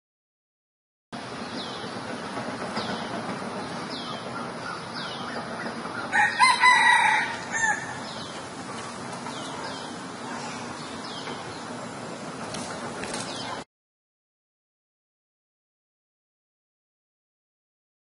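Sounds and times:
steady outdoor hiss: 1.2s - 13.7s
rooster crowing: 5.9s - 8.2s.

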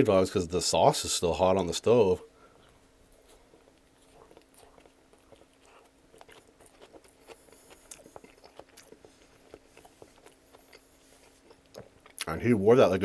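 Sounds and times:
person chewing food: 2.4s - 12.4s.

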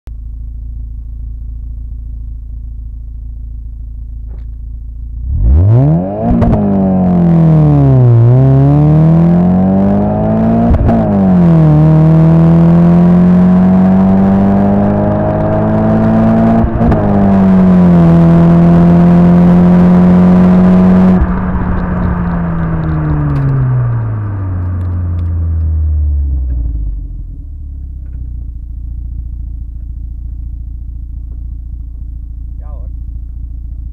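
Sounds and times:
car engine idling: 0.1s - 5.7s, 20.4s - 33.9s
car engine accelerating: 1.4s - 33.9s.

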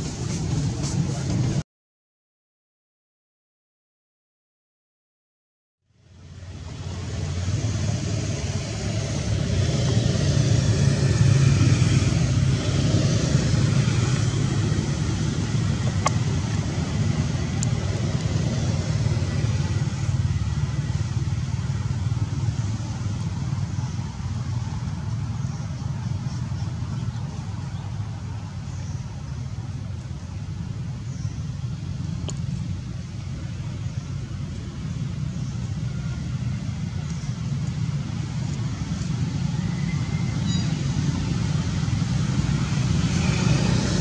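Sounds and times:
low outdoor rumble: 0.0s - 1.6s, 5.9s - 44.0s.

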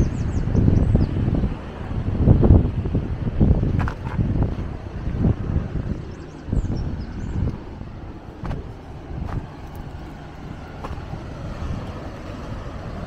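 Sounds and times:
wind rumbling on microphone: 0.0s - 13.0s
footsteps on trail: 8.3s - 12.0s.

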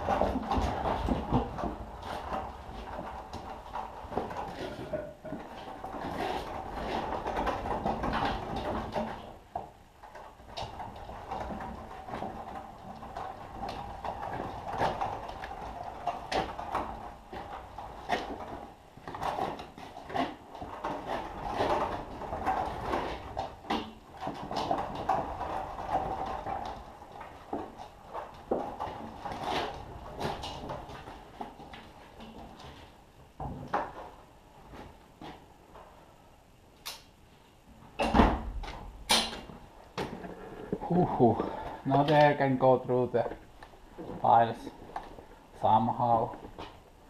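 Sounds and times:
clicks and knocks from pallet: 0.0s - 34.2s
pallet jack rolling and scraping: 0.0s - 34.2s.

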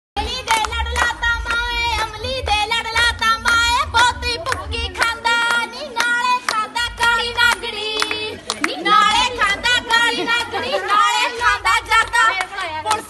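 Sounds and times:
dance music drum beat: 0.2s - 5.7s
deep bass line: 0.2s - 5.9s.

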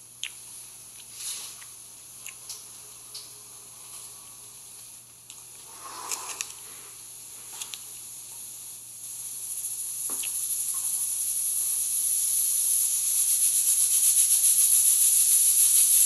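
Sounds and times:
pressure cooker hissing steam: 5.6s - 16.0s.

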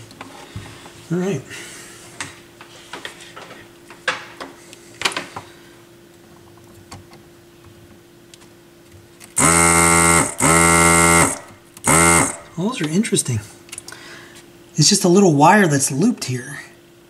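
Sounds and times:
faint steady hum: 0.0s - 17.0s
vacuum pump buzzing: 9.3s - 13.2s.

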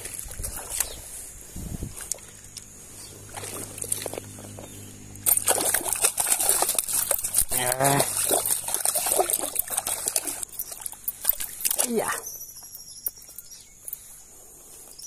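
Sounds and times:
stream trickling: 0.0s - 15.0s
fish splashing in water: 3.2s - 12.2s.

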